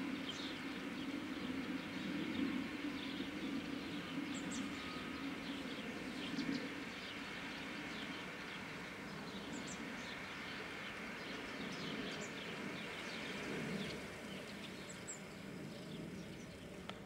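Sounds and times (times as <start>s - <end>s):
birds chirping: 0.1s - 17.0s.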